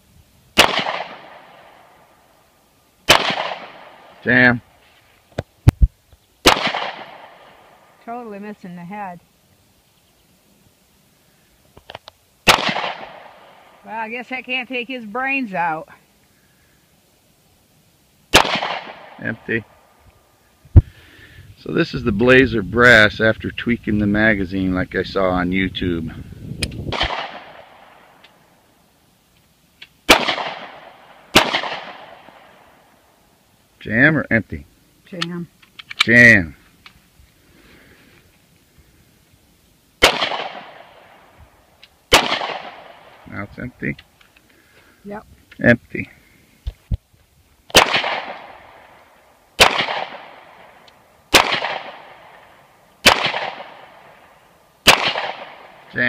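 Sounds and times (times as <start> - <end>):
pistol shots with echo: 0.6 - 1.8, 3.1 - 4.1, 6.4 - 7.6, 12.4 - 13.6, 18.3 - 19.2, 26.9 - 28.0, 30.1 - 32.5, 40.0 - 41.0, 42.1 - 43.1, 47.7 - 48.8, 49.6 - 50.7, 51.3 - 52.4, 53.0 - 54.1, 54.8 - 55.8.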